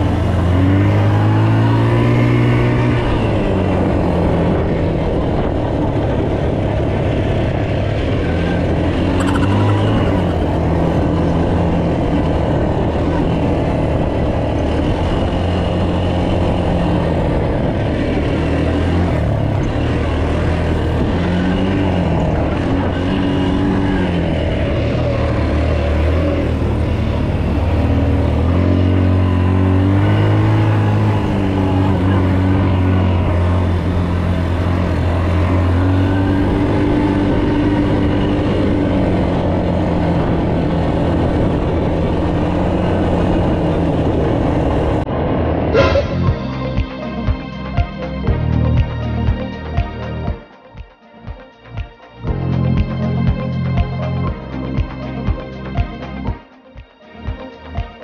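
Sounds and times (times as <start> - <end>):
atv engine revving: 0.0 - 47.2.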